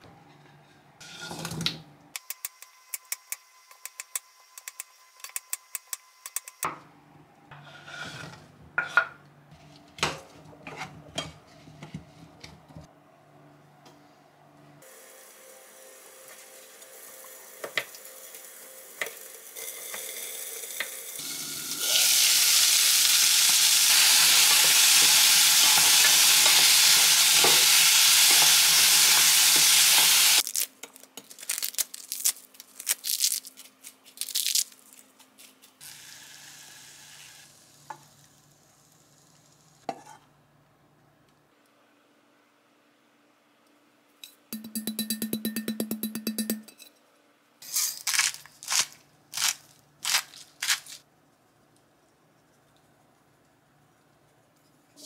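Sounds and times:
vegetables sizzling in a frying pan: 15.0s - 30.4s, 35.8s - 39.8s.

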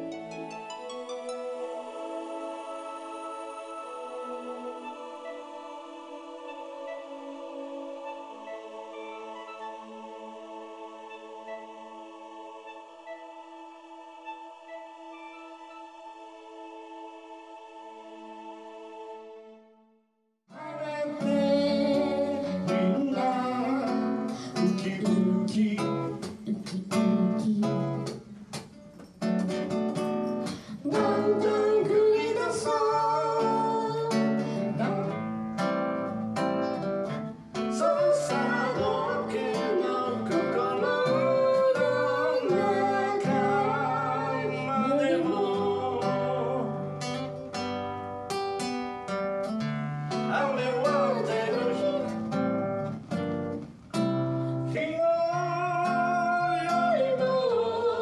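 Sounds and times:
man singing: 20.5s - 28.1s, 37.8s - 46.9s, 50.3s - 52.2s, 54.7s - 58.0s
strummed acoustic guitar: 20.6s - 58.0s.

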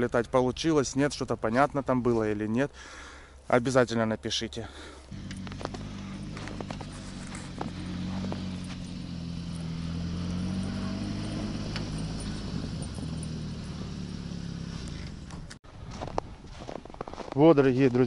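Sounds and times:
vehicle engine droning: 5.1s - 15.6s.

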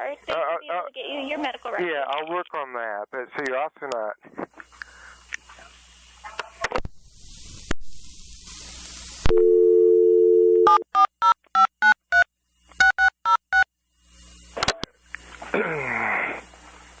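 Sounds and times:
line hiss: 4.5s - 9.4s
two-note dial tone: 9.3s - 12.2s.

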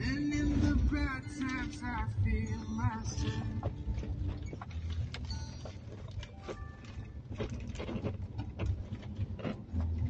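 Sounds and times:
car cabin road and engine rumble: 0.0s - 10.0s
rattles and knocks: 3.0s - 10.0s.

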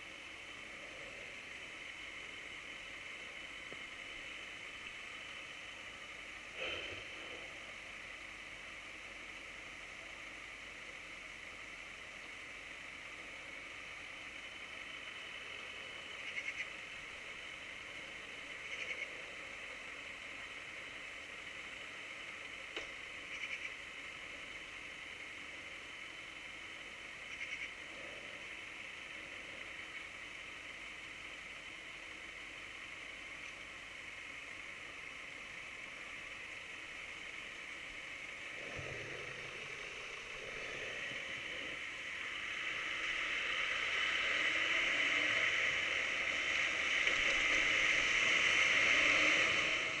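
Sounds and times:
steady hiss: 0.0s - 50.0s
tyre noise on wet road: 35.8s - 50.0s.

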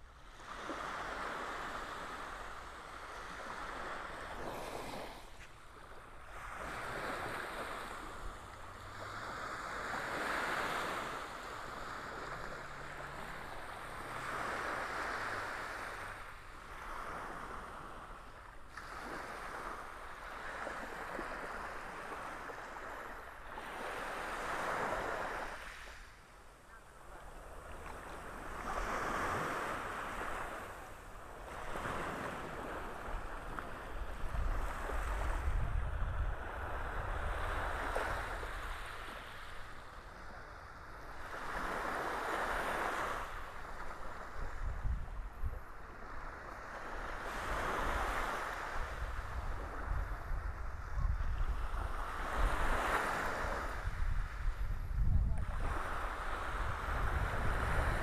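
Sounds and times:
small waves breaking on beach: 0.0s - 58.0s.

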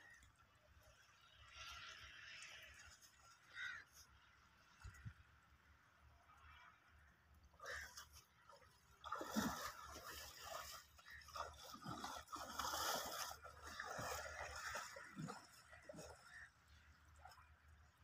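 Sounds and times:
splashing in shallow water: 0.0s - 18.0s
hooves squelching in mud: 9.2s - 16.4s.

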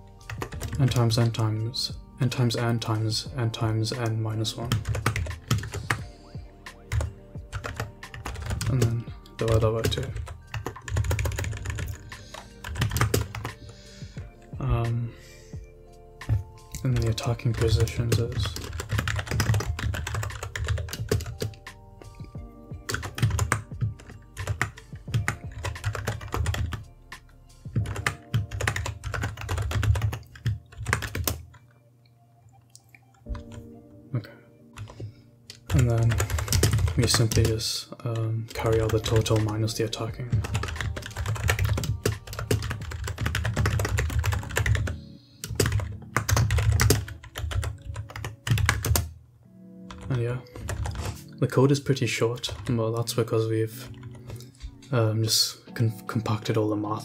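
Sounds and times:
soft background music: 0.0s - 57.0s
typing on keyboard: 0.2s - 1.4s, 4.0s - 6.0s, 6.9s - 13.8s, 16.2s - 21.8s, 22.8s - 26.8s, 27.7s - 31.7s, 33.3s - 33.6s, 34.8s - 37.6s, 38.5s - 49.1s, 49.9s - 51.3s, 52.4s - 52.8s, 53.8s - 54.6s.

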